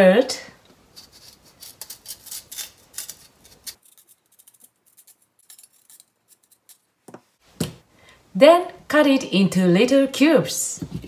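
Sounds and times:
knife scraping root skin: 0:00.9 - 0:06.8.

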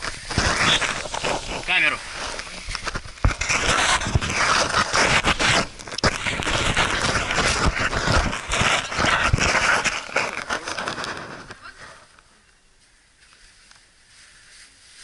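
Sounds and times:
clothing scraping against rock: 0:00.0 - 0:11.7.

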